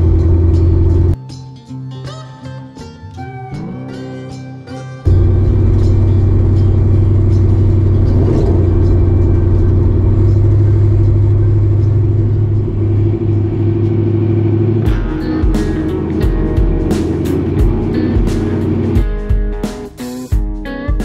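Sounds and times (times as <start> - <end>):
car engine droning: 0.0 - 1.2, 5.1 - 19.0.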